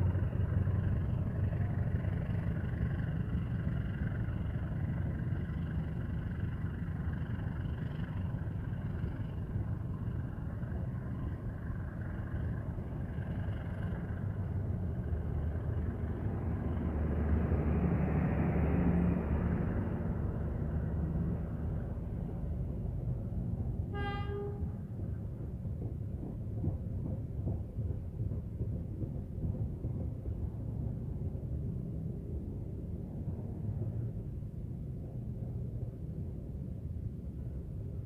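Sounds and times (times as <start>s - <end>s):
train coaches rumbling past: 0.0s - 38.0s
train horn toot: 23.8s - 25.0s.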